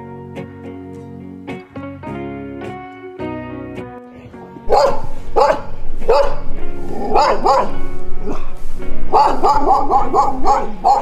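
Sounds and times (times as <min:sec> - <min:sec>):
background music: 0:00.0 - 0:11.0
dogs barking: 0:04.7 - 0:11.0.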